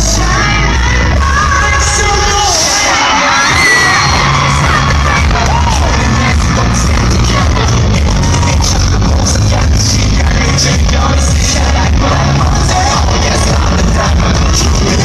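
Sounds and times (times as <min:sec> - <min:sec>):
crowd screaming and cheering: 0:00.0 - 0:15.0
pop music over sound system: 0:00.0 - 0:15.0.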